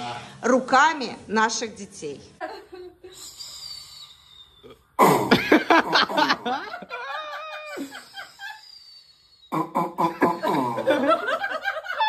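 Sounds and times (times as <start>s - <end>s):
people laughing loudly: 5.4s - 8.6s, 10.2s - 12.0s.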